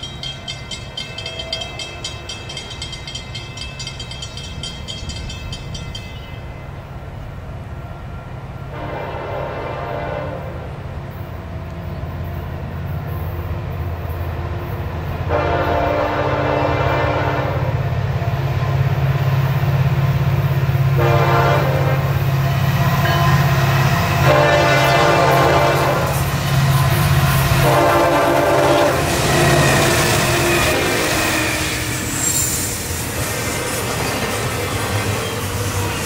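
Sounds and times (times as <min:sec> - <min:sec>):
locomotive rumble: 0:00.0 - 0:36.0
train horn blasts: 0:08.6 - 0:10.8, 0:15.2 - 0:17.8, 0:20.9 - 0:32.4.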